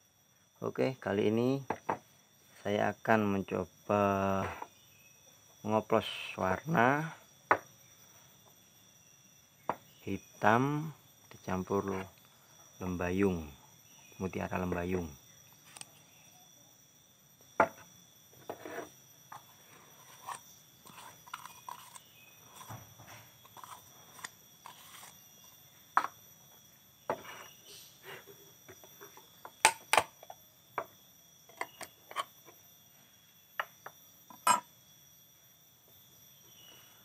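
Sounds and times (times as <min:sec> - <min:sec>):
tins and cup knocking on workbench: 0:17.6 - 0:17.8.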